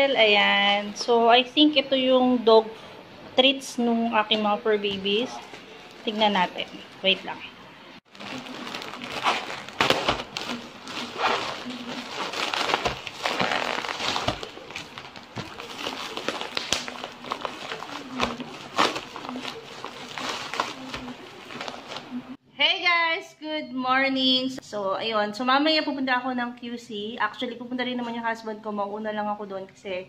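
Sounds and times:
plastic bag and bubble wrap crinkling: 4.8 - 7.5, 8.1 - 22.4.

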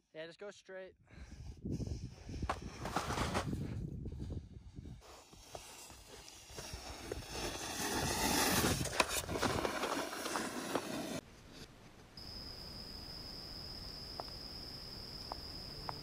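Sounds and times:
snowboard scraping over snow: 1.9 - 3.8, 5.0 - 11.2.

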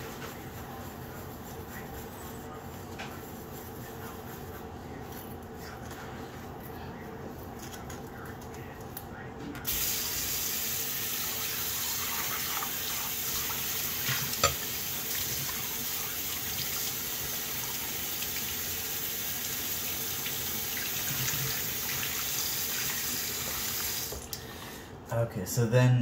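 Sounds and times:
faucet running: 9.7 - 24.4.

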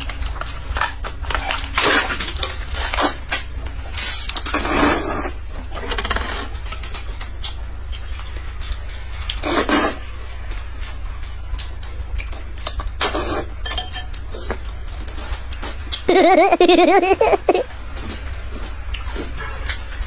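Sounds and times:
noodles slurped: 9.4 - 10.0
chopsticks clinking against bowls: 13.6 - 14.2.

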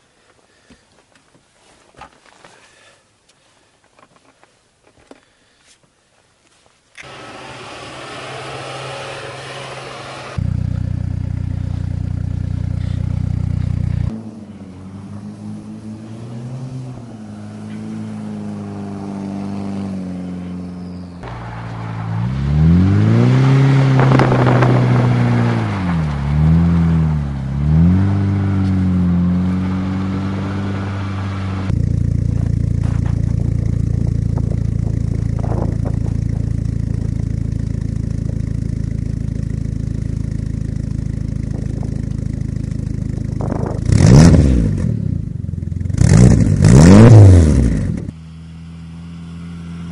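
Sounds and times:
car engine idling: 7.0 - 19.1, 20.3 - 22.7, 23.8 - 46.0, 47.8 - 49.9
car engine revving: 7.0 - 49.9.

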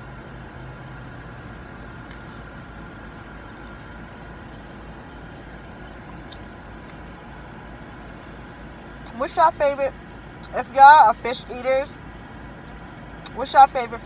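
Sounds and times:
low hum in car cabin: 0.0 - 14.0
faint thin clicks and clinks: 3.6 - 7.8.

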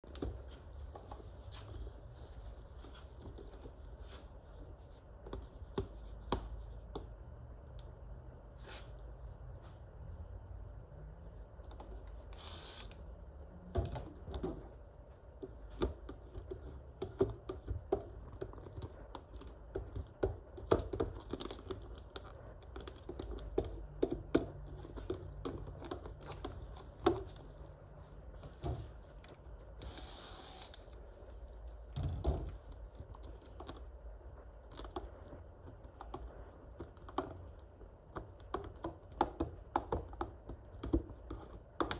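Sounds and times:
spray hisses: 12.4 - 12.9.

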